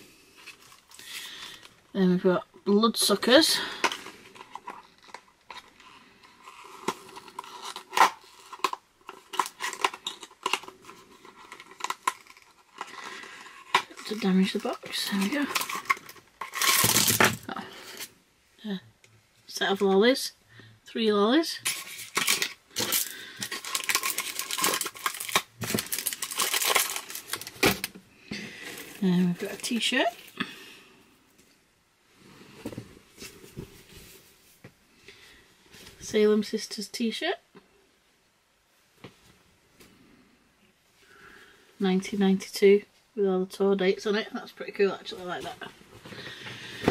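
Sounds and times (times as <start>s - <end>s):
cardboard packaging being handled: 3.7s - 18.1s, 21.6s - 30.4s.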